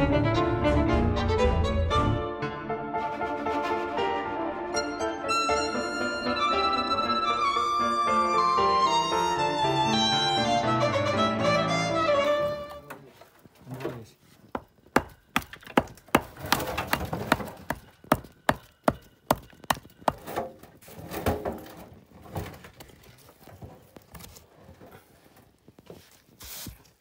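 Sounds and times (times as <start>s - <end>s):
hammer chipping stone: 14.4s - 20.6s.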